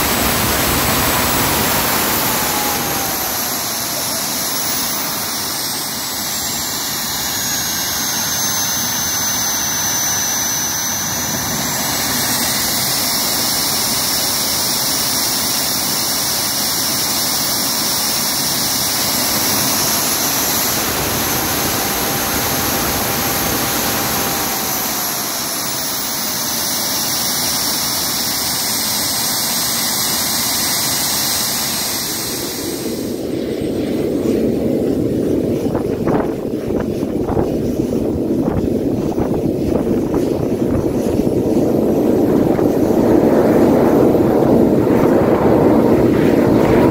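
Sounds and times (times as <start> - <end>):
jet engine roaring with turbine whine: 0.0 - 46.9
wind noise on microphone: 0.0 - 46.9.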